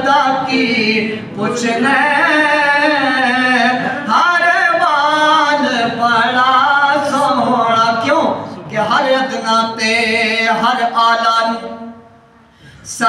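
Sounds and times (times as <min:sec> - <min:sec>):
man singing unaccompanied: 0:00.0 - 0:11.9.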